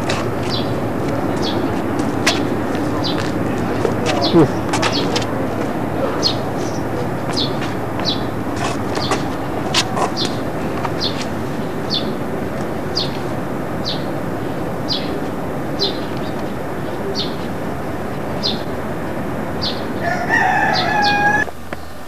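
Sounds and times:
rooster crowing: 0:20.0 - 0:21.5.

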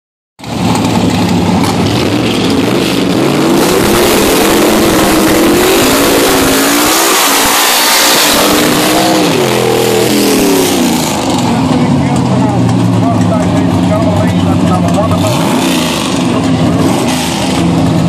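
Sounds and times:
car engine revving hard: 0:00.4 - 0:18.0.

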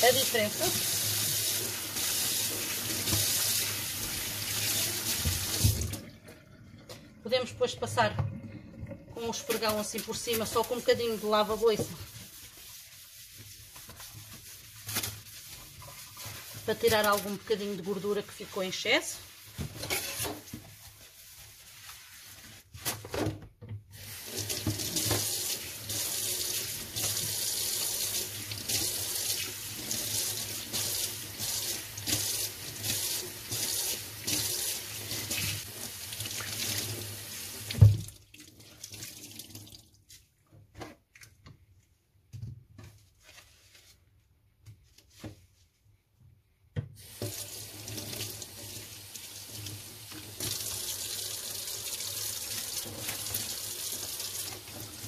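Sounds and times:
sponge wiping sink: 0:00.0 - 0:22.9, 0:24.0 - 0:37.9, 0:42.8 - 0:46.0
tap running into sink: 0:04.6 - 0:06.1, 0:24.4 - 0:25.5.

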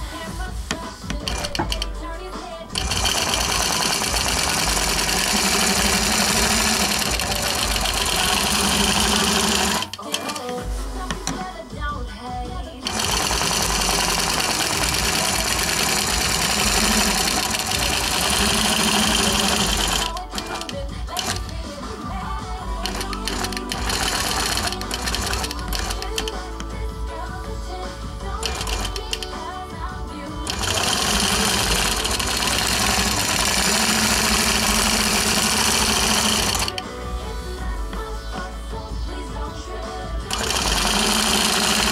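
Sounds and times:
background music: 0:00.0 - 0:41.9
quilting machine stitching: 0:00.7 - 0:01.9, 0:02.7 - 0:11.6, 0:12.8 - 0:26.8, 0:28.3 - 0:29.3, 0:30.2 - 0:37.0, 0:40.3 - 0:41.9.

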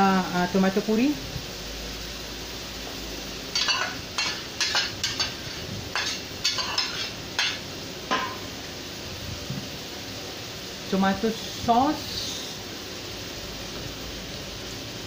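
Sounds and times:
oil sizzling: 0:00.0 - 0:15.0
metal ladle scraping a pot: 0:03.6 - 0:07.6.

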